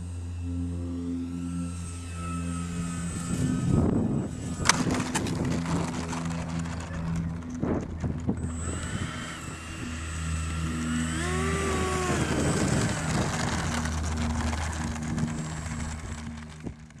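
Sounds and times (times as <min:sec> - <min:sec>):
electric ducted fan whining: 0:00.0 - 0:17.0
steady low hum: 0:00.0 - 0:17.0
wind noise: 0:03.1 - 0:17.0.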